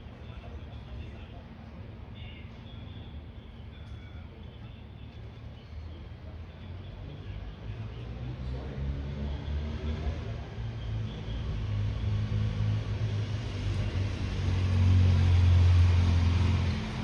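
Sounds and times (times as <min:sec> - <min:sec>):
traffic engine rumble: 0:00.0 - 0:17.0
vehicle passing: 0:08.0 - 0:17.0.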